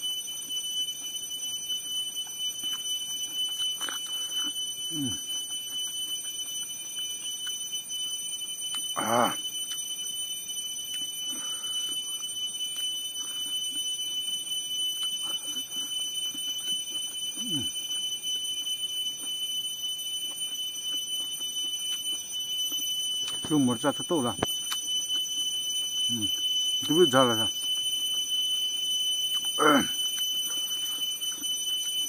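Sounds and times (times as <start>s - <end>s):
chewing and mouth sounds: 2.6s - 7.6s, 20.1s - 23.5s, 24.4s - 26.5s, 29.2s - 32.0s
insects droning: 28.8s - 31.4s.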